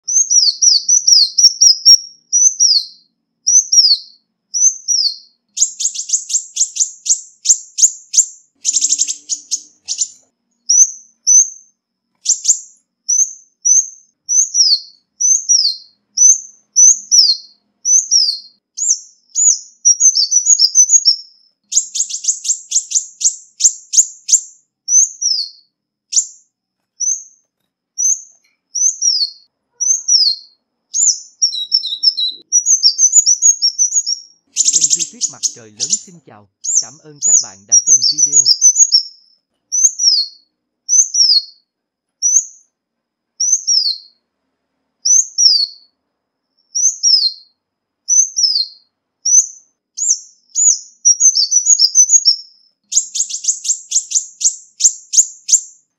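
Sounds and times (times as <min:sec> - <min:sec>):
sunbird calling: 0:00.0 - 0:11.6, 0:28.8 - 0:41.6.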